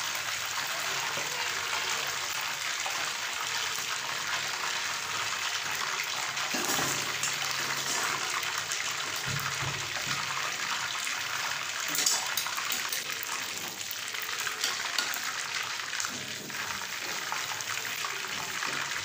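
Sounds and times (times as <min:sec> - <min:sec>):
chicken sizzling in hot oil: 0:00.0 - 0:19.0.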